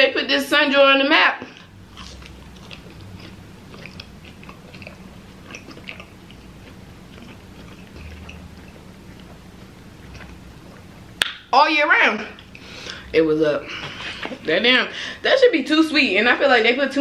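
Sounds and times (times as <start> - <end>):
low steady hum: 0.0 - 17.0
person chewing food: 1.5 - 11.2, 12.3 - 13.1.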